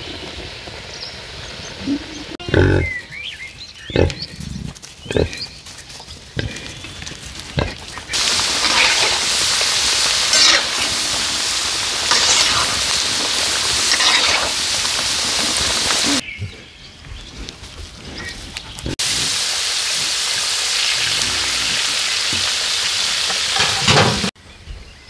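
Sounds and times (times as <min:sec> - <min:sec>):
outdoor sound: 0:00.0 - 0:25.0
pig grunts: 0:02.4 - 0:02.9, 0:05.1 - 0:05.4, 0:06.4 - 0:06.8
potatoes sizzling in oil: 0:07.5 - 0:16.2, 0:19.0 - 0:24.3.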